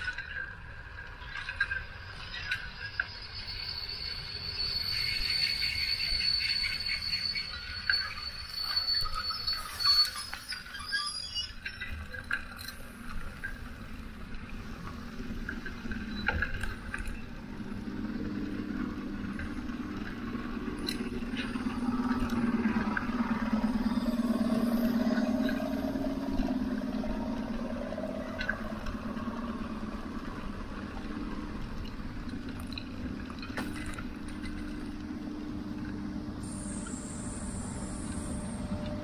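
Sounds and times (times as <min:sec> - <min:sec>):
motor vehicle hum: 0:11.7 - 0:39.0
high whine: 0:13.8 - 0:39.0.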